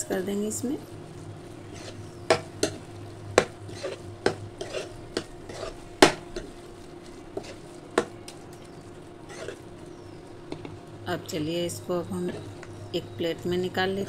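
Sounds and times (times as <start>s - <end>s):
spoon stirring thick food in a pan: 1.6s - 10.8s
spoon clanking against a pan: 1.8s - 2.8s, 3.4s - 6.5s.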